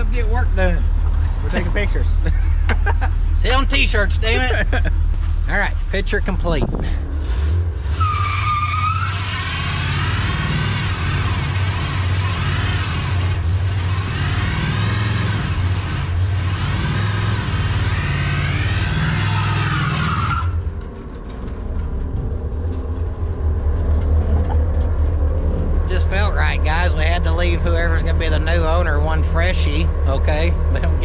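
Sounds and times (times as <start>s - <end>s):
tyres squealing: 7.9s - 13.2s, 16.8s - 20.7s
engine at high revs: 9.0s - 20.4s.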